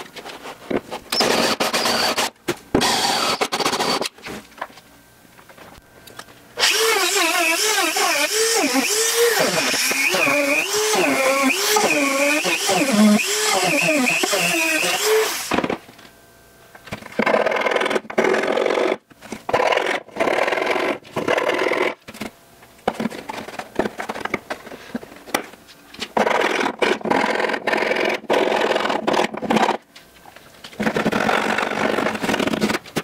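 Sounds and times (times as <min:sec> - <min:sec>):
filing and sanding fiberglass: 0:06.6 - 0:15.5.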